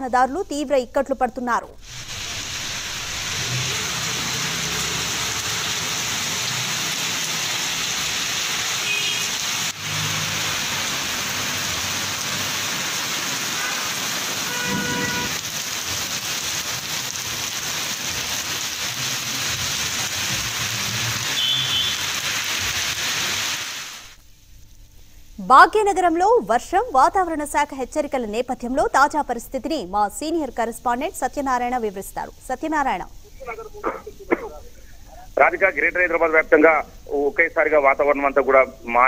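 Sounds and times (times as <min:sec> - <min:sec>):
heavy rain on street: 0:01.8 - 0:24.2.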